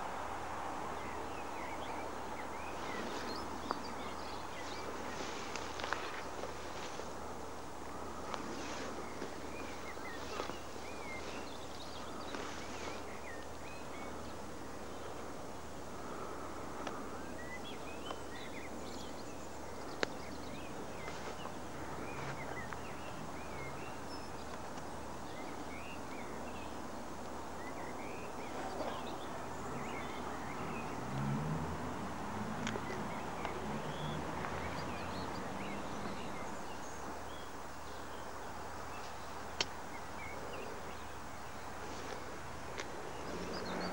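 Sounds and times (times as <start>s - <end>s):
small birds chirping: 0.0s - 43.9s
short low bird calls: 27.8s - 31.0s.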